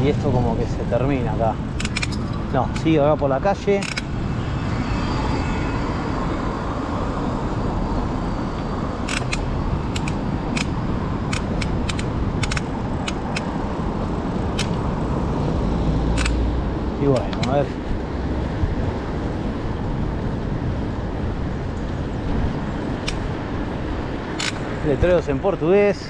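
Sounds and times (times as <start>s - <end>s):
wind rumble on microphone: 0.0s - 26.0s
sharp clicks and rattles: 1.7s - 3.0s, 3.7s - 4.1s, 9.0s - 13.6s, 14.4s - 15.0s, 16.1s - 17.7s, 24.4s - 24.8s.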